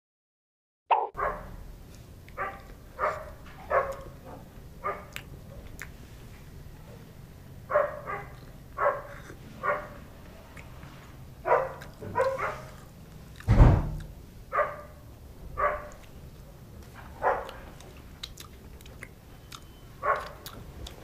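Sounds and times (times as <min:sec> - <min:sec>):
dog barking: 0:00.9 - 0:01.6, 0:02.4 - 0:05.2, 0:07.7 - 0:10.0, 0:11.4 - 0:12.8, 0:14.5 - 0:15.0, 0:15.6 - 0:16.0, 0:17.0 - 0:17.7, 0:20.0 - 0:20.5.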